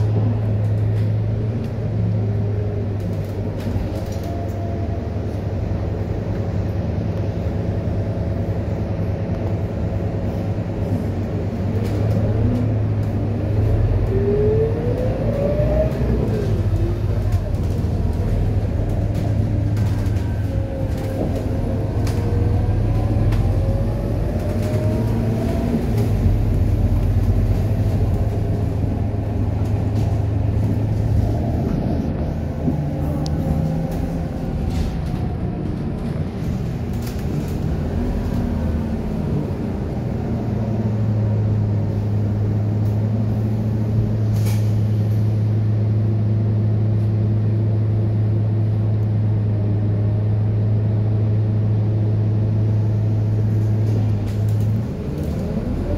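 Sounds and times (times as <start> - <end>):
bus body rattles and clicks: 0.0 - 55.9
bus diesel engine: 0.0 - 55.9.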